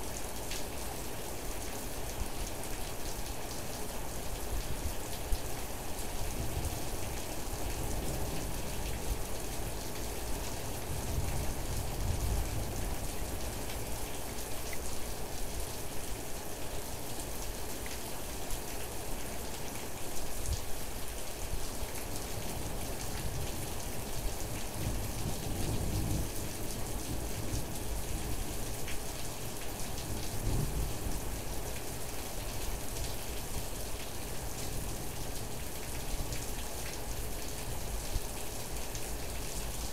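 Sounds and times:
rain pattering: 0:00.0 - 0:39.9.

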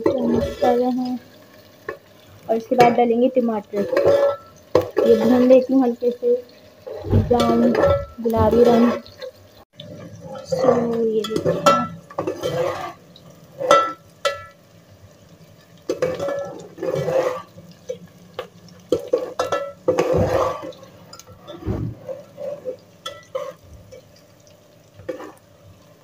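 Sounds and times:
onions frying in oil: 0:00.0 - 0:26.0
spoon scraping metal pot: 0:03.8 - 0:05.5, 0:10.3 - 0:13.0, 0:15.9 - 0:17.5, 0:19.0 - 0:23.6.

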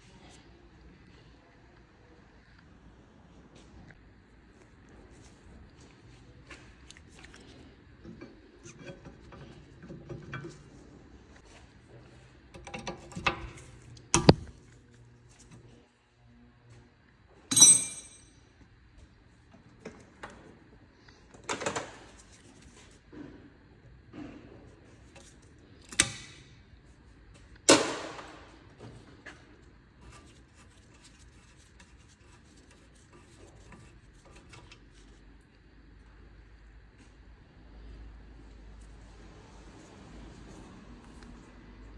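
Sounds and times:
small metallic clicks and clinks: 0:17.5 - 0:18.4.

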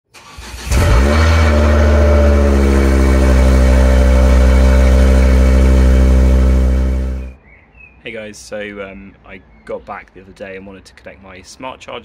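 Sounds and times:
car engine starting and idling: 0:00.1 - 0:07.4.

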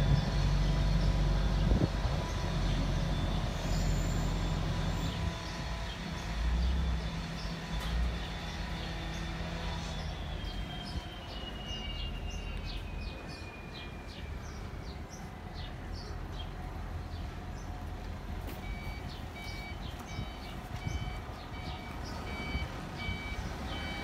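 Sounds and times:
low engine rumble: 0:00.0 - 0:24.0
reversing beeper: 0:02.8 - 0:05.2, 0:09.6 - 0:14.4, 0:18.6 - 0:24.0.

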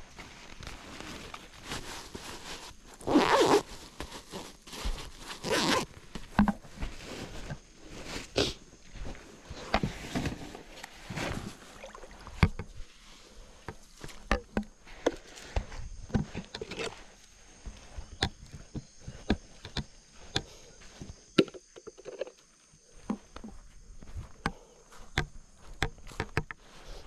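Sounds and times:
fabric rustling: 0:00.0 - 0:08.3
zipper pulled shut: 0:03.0 - 0:03.7, 0:05.4 - 0:05.9.

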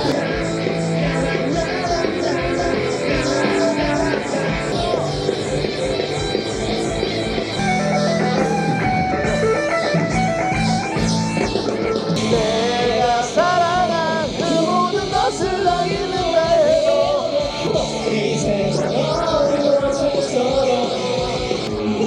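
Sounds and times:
person singing: 0:00.0 - 0:05.5, 0:12.2 - 0:22.0
rock band music: 0:00.0 - 0:22.0.

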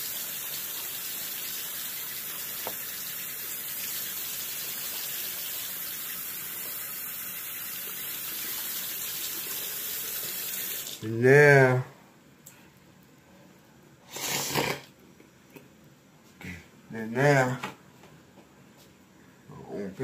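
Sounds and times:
tap water running into sink: 0:00.0 - 0:11.0.

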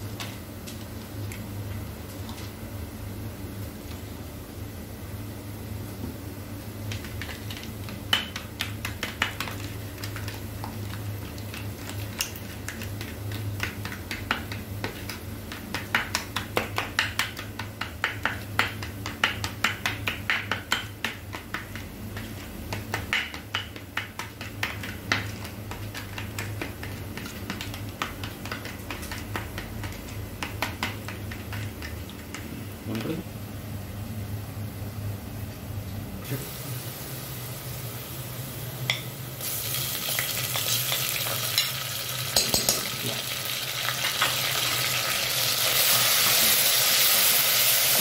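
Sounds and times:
steady low hum: 0:00.0 - 0:39.5
spoon tapping against a bowl: 0:42.4 - 0:42.9.

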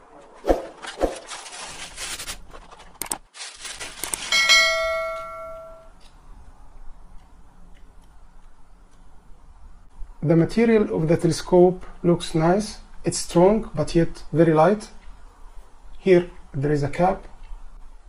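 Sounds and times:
plastic packaging crinkling: 0:00.8 - 0:04.8
bright bell chime: 0:04.3 - 0:05.9.

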